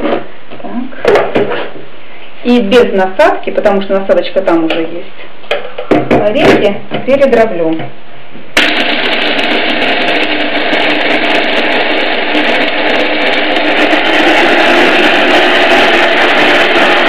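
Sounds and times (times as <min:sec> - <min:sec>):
hand blender motor running: 0:08.6 - 0:17.0.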